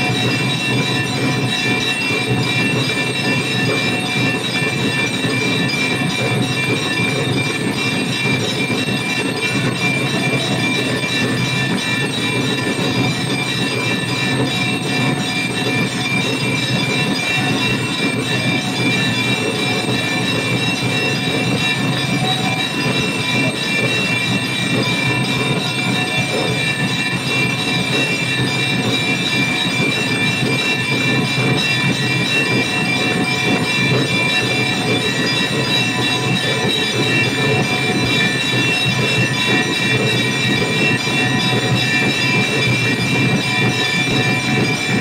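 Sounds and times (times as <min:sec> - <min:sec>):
brass bells clanging: 0:00.0 - 0:45.0.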